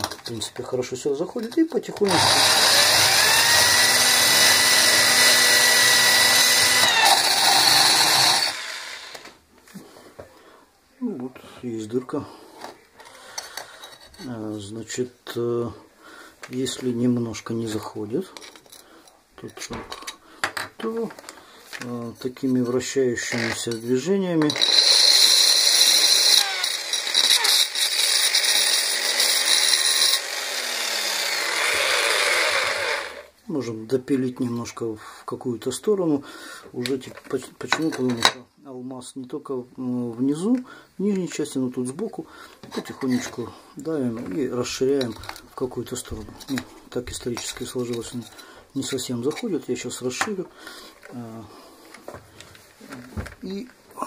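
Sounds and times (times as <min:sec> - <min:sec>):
drill grinding porcelain: 0:02.0 - 0:09.3, 0:24.4 - 0:33.3
drill spinning down: 0:02.1 - 0:09.3, 0:24.5 - 0:33.3.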